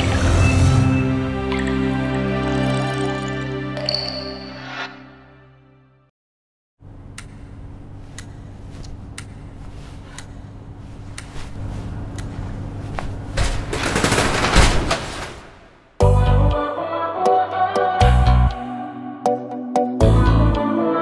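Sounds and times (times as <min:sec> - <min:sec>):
sharp ticks: 0:07.1 - 0:07.5
music with heavy bass: 0:16.0 - 0:16.6, 0:18.0 - 0:18.6, 0:20.0 - 0:20.7.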